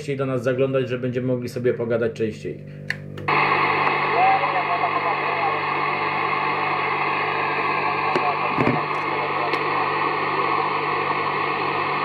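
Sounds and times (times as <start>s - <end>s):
radio static hiss: 3.3s - 12.0s.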